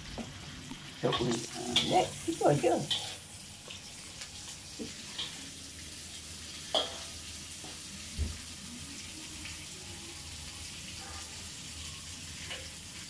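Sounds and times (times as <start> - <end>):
vegetables sizzling in a wok: 0.0 - 13.0
metal spatula clanking on wok: 6.7 - 7.2.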